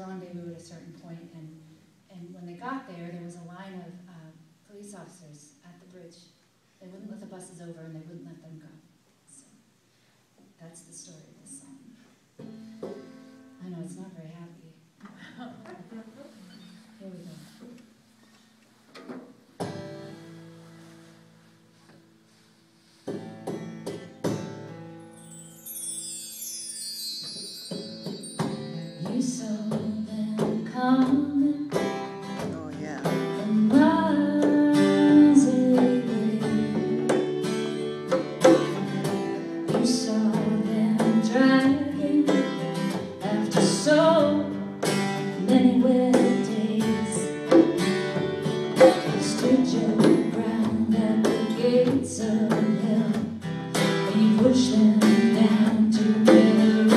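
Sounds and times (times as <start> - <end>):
band playing a slow song: 24.4 - 30.6
woman singing: 28.9 - 31.8, 33.1 - 37.2, 39.7 - 44.6, 45.3 - 47.7, 49.0 - 53.4, 54.0 - 56.9.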